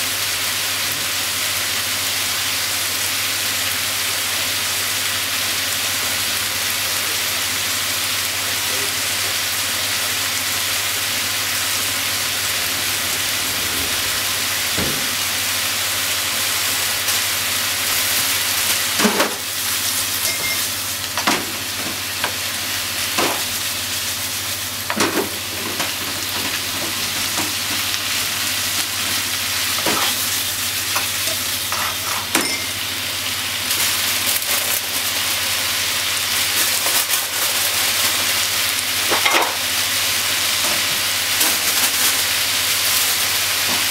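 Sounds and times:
food sizzling in a frying pan: 0:00.0 - 0:43.9
spatula scraping a pan: 0:31.0 - 0:32.3.

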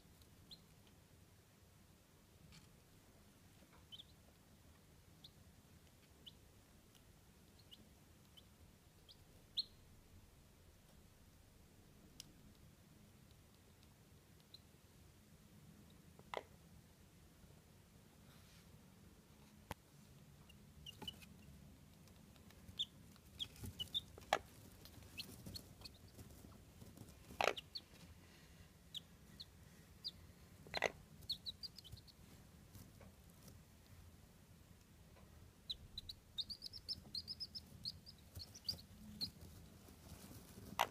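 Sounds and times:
chicks peeping softly: 0:00.1 - 0:01.0, 0:03.4 - 0:10.0, 0:13.3 - 0:15.0, 0:20.1 - 0:33.6, 0:35.2 - 0:40.9
hen clucking: 0:22.4 - 0:28.0, 0:28.9 - 0:32.2, 0:35.7 - 0:40.9.

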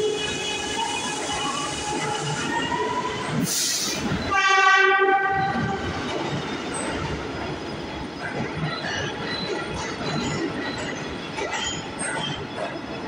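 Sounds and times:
subway train rumbling and clacking: 0:00.0 - 0:13.0
train horn blast: 0:04.3 - 0:05.6.

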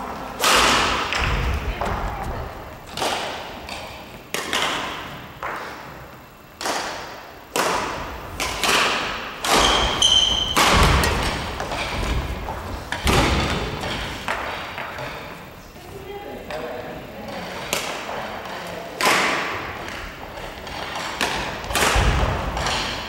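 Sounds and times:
rackets hitting shuttlecock: 0:00.4 - 0:15.4, 0:17.4 - 0:23.0
high squeal: 0:09.6 - 0:10.6.

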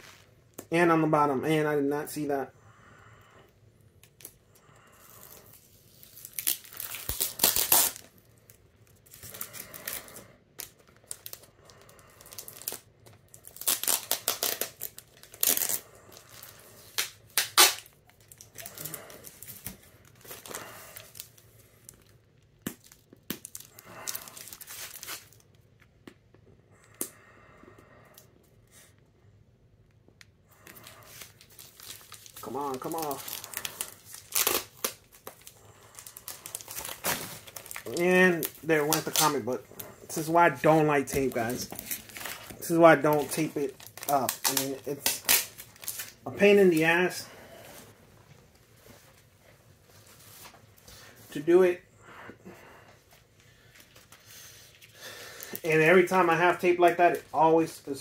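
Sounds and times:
plastic wrapping crinkling: 0:05.0 - 0:26.0, 0:30.5 - 0:47.8
packing tape tearing: 0:05.2 - 0:08.1, 0:09.0 - 0:25.4, 0:30.6 - 0:39.6, 0:41.1 - 0:46.2.

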